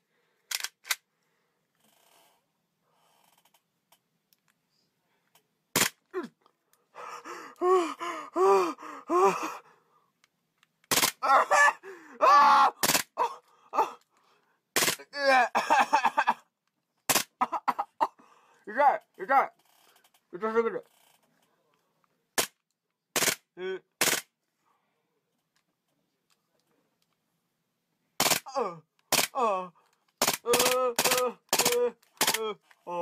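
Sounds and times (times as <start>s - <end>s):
man crying in pain: 7.0s - 9.8s, 11.2s - 14.0s, 15.1s - 16.5s, 17.4s - 18.2s, 28.4s - 29.8s, 30.4s - 33.0s
replica pistol firing bursts: 10.9s - 11.2s, 12.8s - 13.1s, 23.2s - 23.4s, 24.0s - 24.3s, 28.2s - 28.5s, 30.2s - 32.4s.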